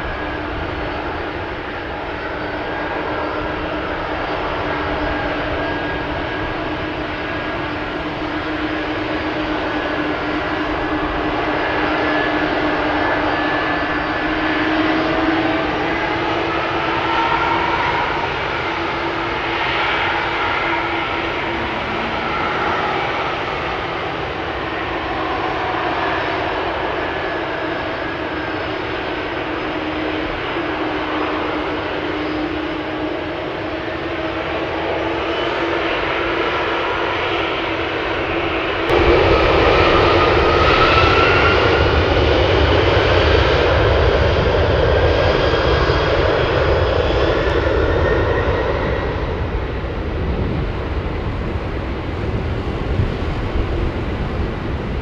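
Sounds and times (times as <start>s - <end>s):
jet engines whining: 0.0s - 55.0s.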